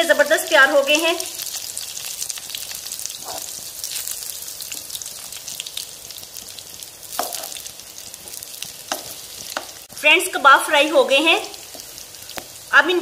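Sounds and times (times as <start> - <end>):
meat sizzling in a frying pan: 0.0 - 13.0
metal spoon scraping a pan: 3.1 - 3.6, 7.1 - 7.7.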